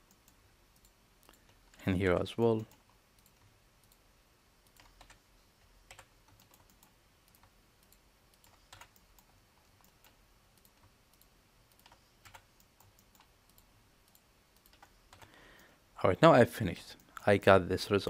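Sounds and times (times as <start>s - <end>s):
keyboard keys clicking: 5.9s - 15.3s.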